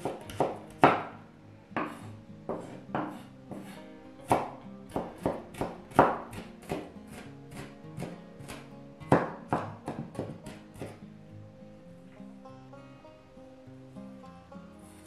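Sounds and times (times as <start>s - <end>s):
knife chopping on wooden board: 0.0s - 1.1s, 1.8s - 11.0s
background music: 0.0s - 15.0s.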